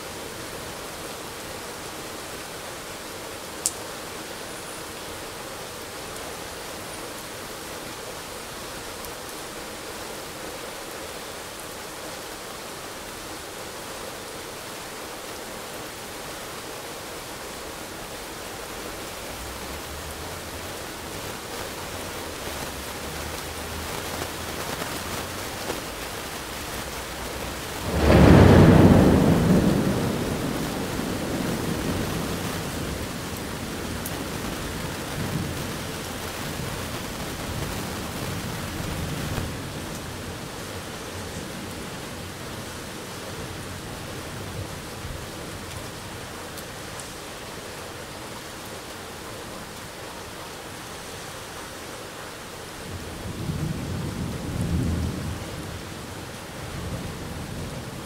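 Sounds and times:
heavy rain: 0.0 - 58.0
thunder rumbling: 19.5 - 40.3
loud thunderclap: 27.7 - 35.7.

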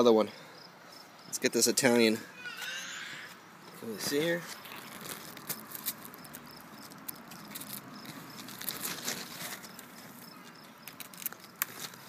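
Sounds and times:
insect chirping: 0.3 - 11.7
leaves rustling and crackling: 3.7 - 12.0.

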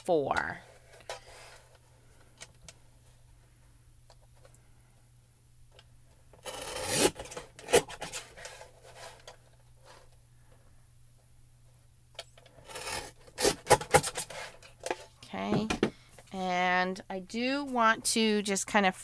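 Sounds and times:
paper trimmer blade scraping burlap: 6.4 - 9.2.

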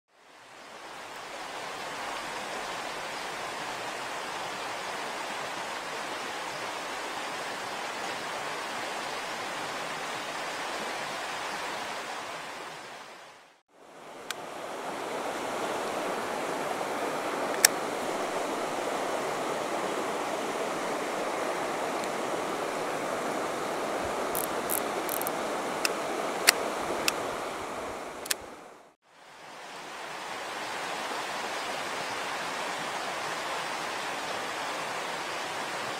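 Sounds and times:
stream water flowing: 0.1 - 35.9
sharp clicks: 24.4 - 27.2, 28.2 - 28.4.

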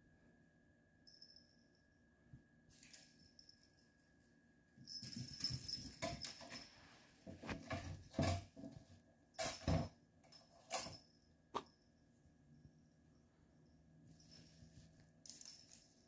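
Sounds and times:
faint high jingle: 0.7 - 8.3, 9.3 - 16.0
kitten scrabbling and rattling: 4.9 - 11.0.

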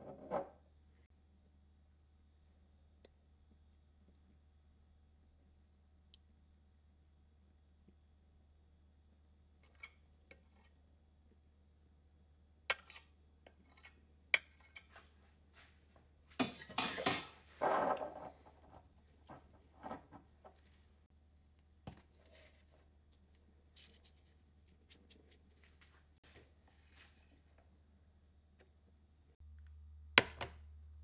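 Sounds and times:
clattering and scraping: 0.0 - 0.6, 16.4 - 21.0.

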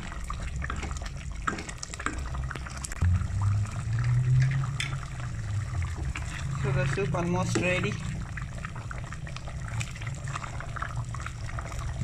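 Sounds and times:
wooden spoon stirring: 0.0 - 2.9, 5.8 - 8.1
soup bubbling in a pot: 0.0 - 12.0
low hum: 2.9 - 12.0.

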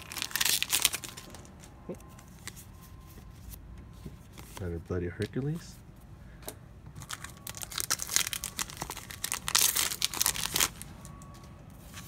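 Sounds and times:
foil wrapper crinkling and tearing: 0.0 - 2.6, 7.0 - 10.8.

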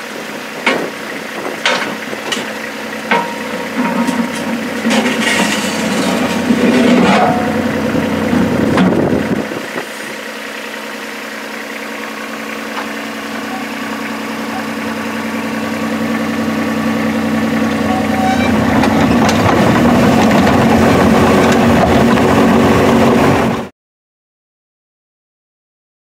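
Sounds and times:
excavator diesel engine running: 0.0 - 23.7
clanks and knocks: 0.6 - 7.8, 17.9 - 22.0.

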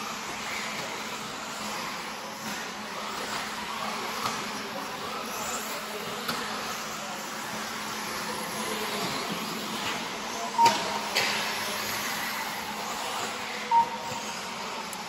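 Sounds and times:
rc car motor whine: 0.0 - 15.0
short beeps: 10.4 - 11.3, 13.6 - 14.3.

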